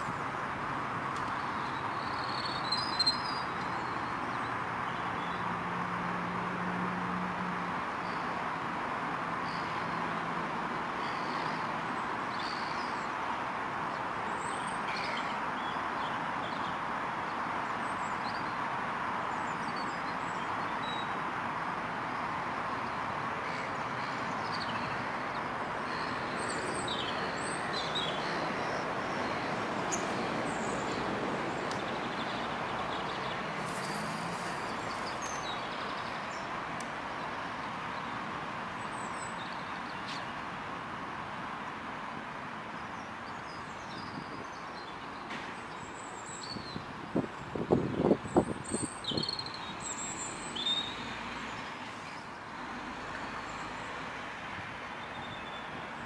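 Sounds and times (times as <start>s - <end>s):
small birds chirping: 1.2s - 5.4s, 22.1s - 38.2s, 47.6s - 52.4s.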